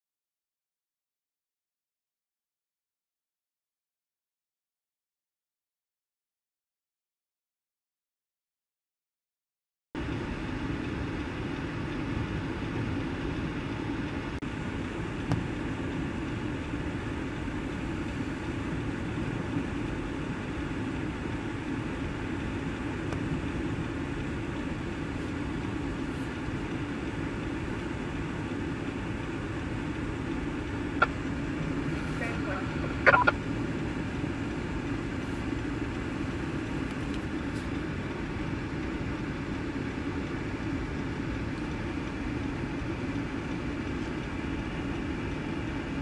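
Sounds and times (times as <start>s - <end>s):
vehicle engines idling: 10.0s - 46.0s.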